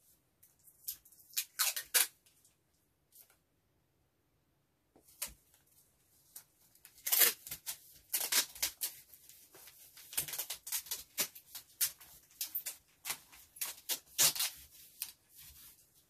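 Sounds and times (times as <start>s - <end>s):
packing tape pulled off roll: 0.8s - 2.2s, 6.9s - 9.0s, 10.1s - 15.2s.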